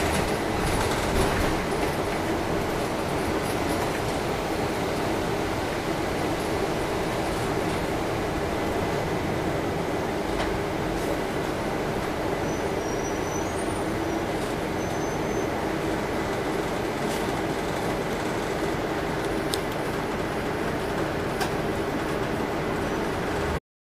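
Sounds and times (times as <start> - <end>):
bus engine and road noise: 0.0 - 23.6
faint high squeaks: 12.4 - 14.2.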